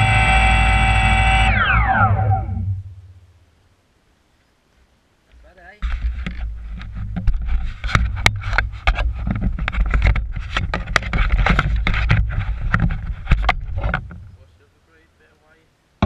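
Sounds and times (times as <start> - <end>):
heavy low rumble: 0.0 - 3.5
camera handling rubbing: 5.8 - 14.1
sharp knocks and clicks: 5.8 - 14.4.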